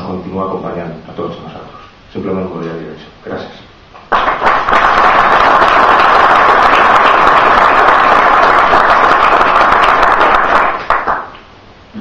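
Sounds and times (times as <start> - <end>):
audience applauding: 4.1 - 11.4.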